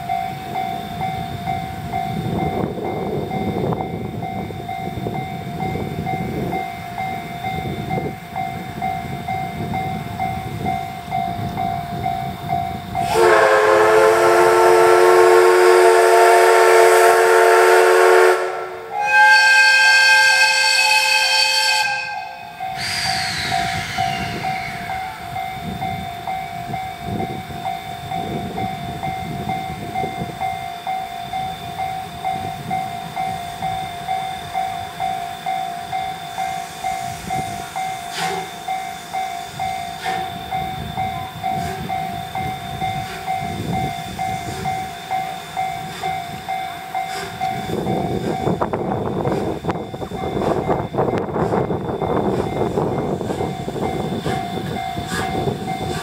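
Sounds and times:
level crossing warning bell: 0:00.0 - 0:56.0
low rumble of train: 0:00.0 - 0:56.0
steam whistle blasts: 0:13.0 - 0:25.2, 0:34.2 - 0:42.0.

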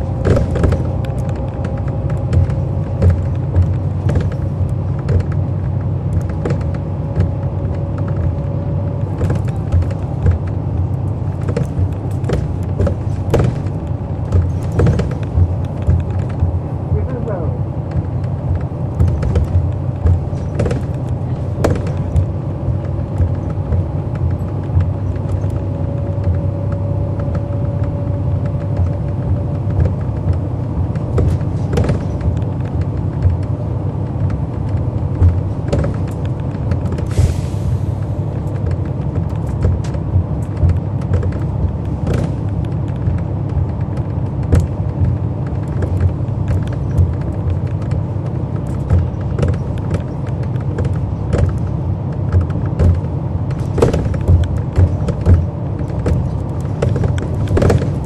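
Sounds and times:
bus engine rumbling: 0:00.0 - 0:58.0
rattles and clicks from bus body: 0:00.0 - 0:58.0
air hiss: 0:37.1 - 0:38.0.

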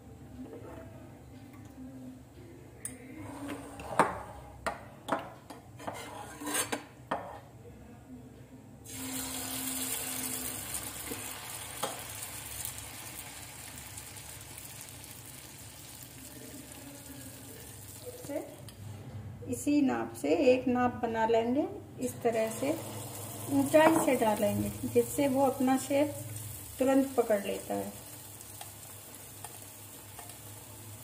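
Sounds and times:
batter sizzling in hot oil: 0:08.9 - 0:18.5, 0:22.4 - 0:31.0.

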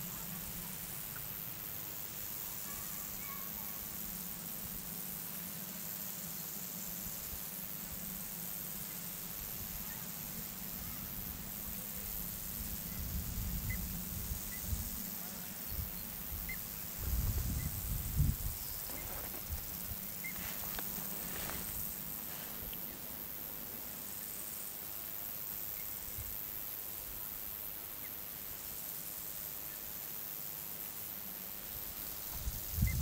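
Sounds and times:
faint high hiss: 0:00.0 - 0:33.0.

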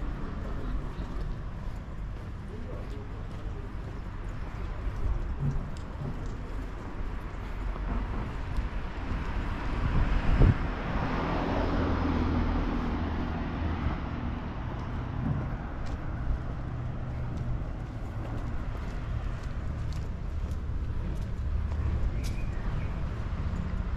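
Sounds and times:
vehicle driving past: 0:09.7 - 0:19.6.

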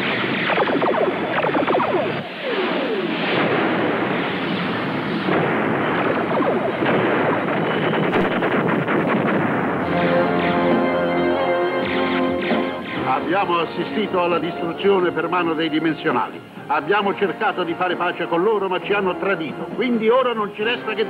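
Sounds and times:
cartoon explosion blasts: 0:00.0 - 0:13.4
music: 0:00.0 - 0:21.0
cartoon laser zaps: 0:00.2 - 0:03.5, 0:06.0 - 0:10.8.

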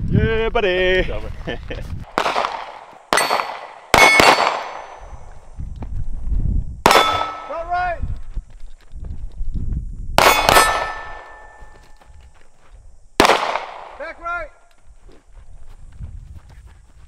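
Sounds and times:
pistol shots: 0:02.1 - 0:05.0, 0:06.8 - 0:07.6, 0:10.2 - 0:11.6, 0:13.2 - 0:14.0
steel plate ringing clang: 0:03.1 - 0:05.0, 0:06.9 - 0:07.7, 0:10.2 - 0:11.9.

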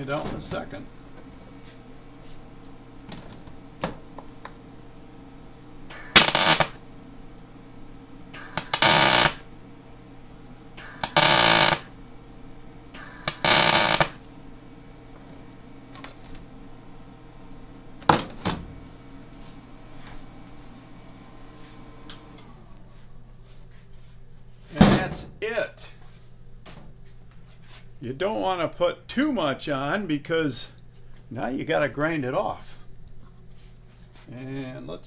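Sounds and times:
steady low hum: 0:00.0 - 0:35.0
welding arc crackle: 0:05.9 - 0:06.8, 0:08.4 - 0:09.5, 0:10.8 - 0:11.9, 0:13.0 - 0:14.3.

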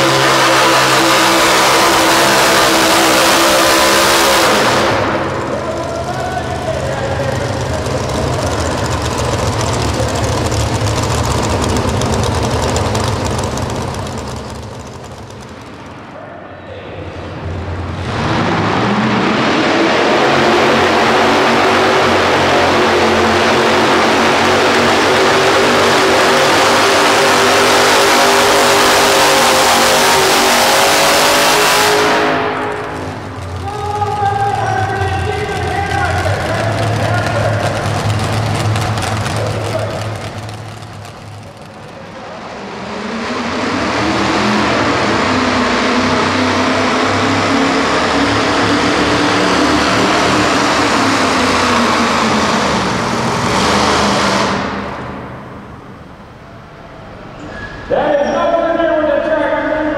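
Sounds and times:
tractor engine at full throttle: 0:00.0 - 0:16.2, 0:17.3 - 0:57.2.

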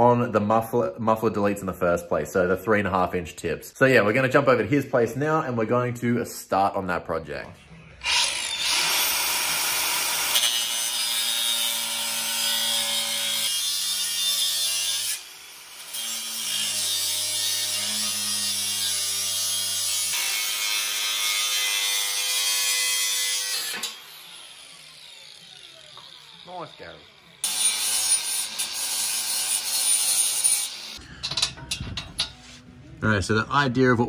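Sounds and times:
angle grinder cutting metal pipe: 0:08.0 - 0:31.5.

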